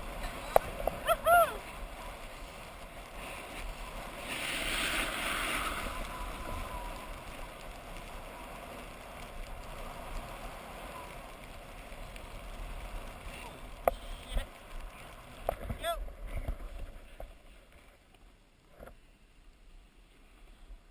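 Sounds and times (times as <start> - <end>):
wind rushing over microphone: 0.0 - 8.5
skis hissing over packed snow: 0.0 - 15.5.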